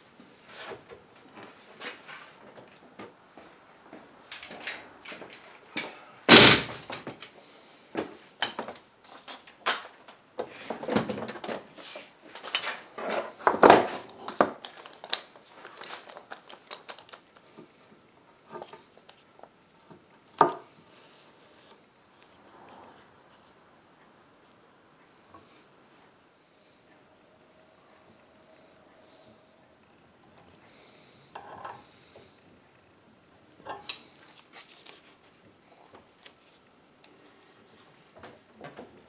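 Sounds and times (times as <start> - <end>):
clamps knocking and clattering: 6.3 - 7.3.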